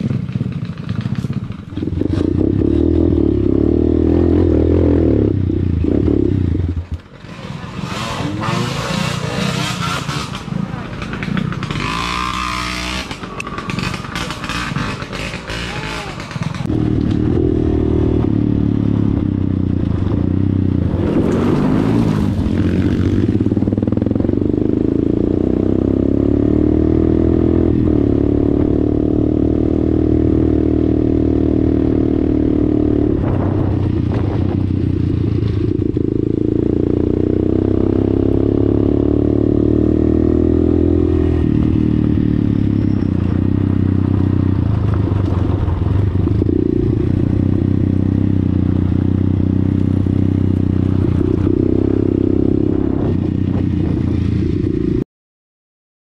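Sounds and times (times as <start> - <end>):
dirt bike engine revving: 1.0 - 44.2
gravel clattering under tyres: 44.0 - 46.6.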